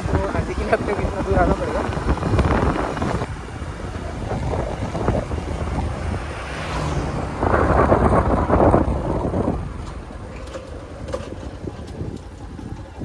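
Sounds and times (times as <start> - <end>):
van passing: 0.0 - 13.0
wind buffeting microphone: 0.0 - 13.0.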